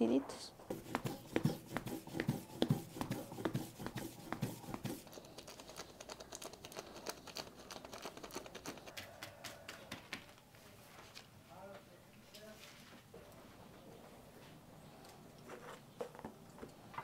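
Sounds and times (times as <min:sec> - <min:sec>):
stone grinding on stone: 0:00.7 - 0:06.6.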